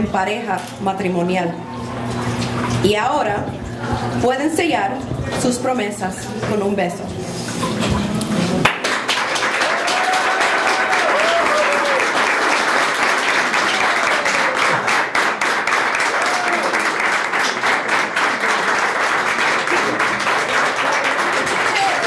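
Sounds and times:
crowd clapping: 8.5s - 22.0s.

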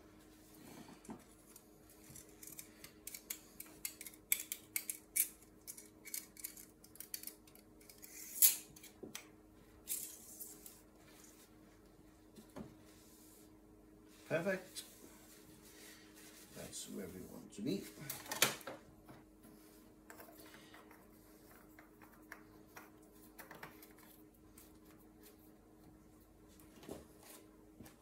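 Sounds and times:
faint steady hum: 0.0s - 28.0s
paper towel rustling: 12.8s - 18.2s.

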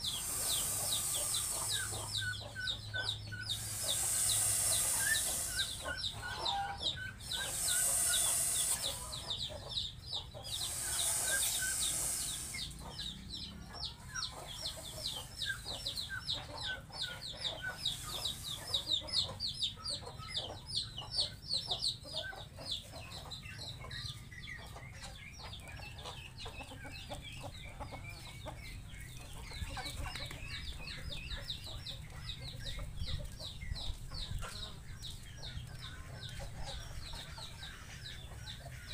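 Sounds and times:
bursts of hiss: 0.0s - 2.8s, 3.5s - 6.5s, 7.2s - 9.4s, 10.5s - 13.0s, 14.4s - 15.8s, 17.5s - 19.3s
chickens peeping and clucking: 0.0s - 38.9s.

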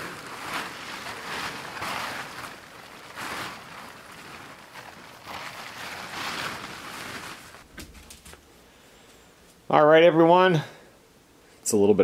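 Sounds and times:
plastic tarp rustling: 0.0s - 8.5s.

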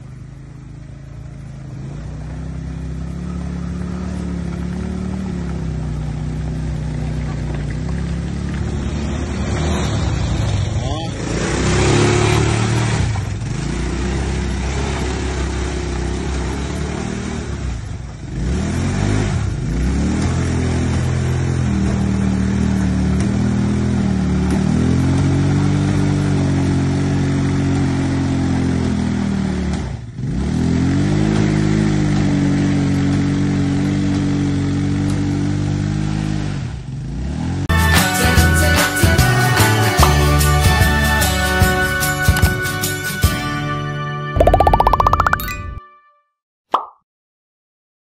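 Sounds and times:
quad bike engine revving: 0.0s - 37.7s.

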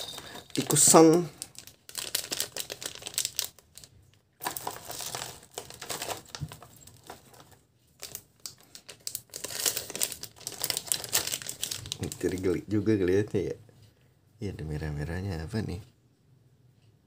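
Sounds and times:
plastic bag crinkling: 0.0s - 13.0s.

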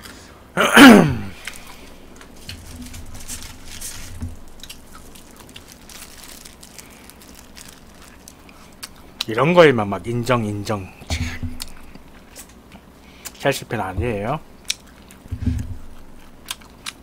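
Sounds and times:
eating crunches and clicks: 4.4s - 9.3s, 14.6s - 15.3s, 15.9s - 17.0s.

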